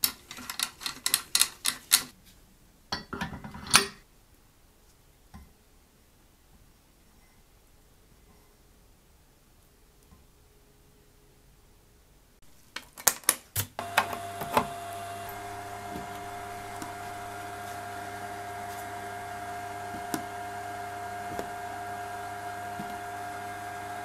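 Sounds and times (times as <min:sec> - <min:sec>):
electric device humming and whining: 0:13.8 - 0:24.0.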